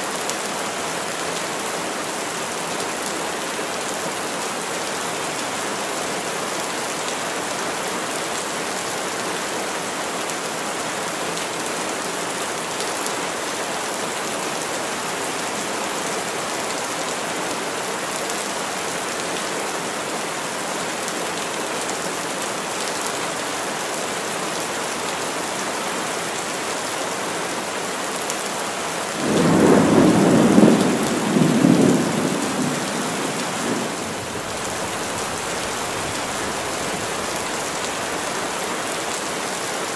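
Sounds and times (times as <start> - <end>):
heavy rain on trees: 0.0 - 39.9
thunder rumbling: 29.2 - 36.6.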